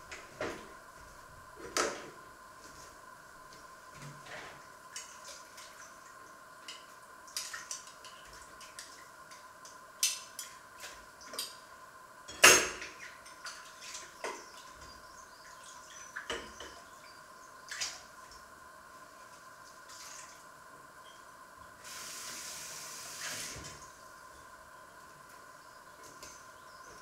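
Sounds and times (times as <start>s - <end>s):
faint steady hum: 0.0s - 27.0s
water dripping and splashing: 4.9s - 10.6s.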